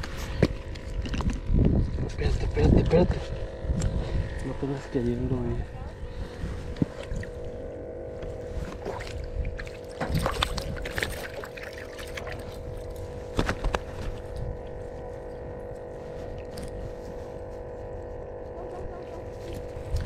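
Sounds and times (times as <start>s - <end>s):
droning hum: 0.0s - 20.0s.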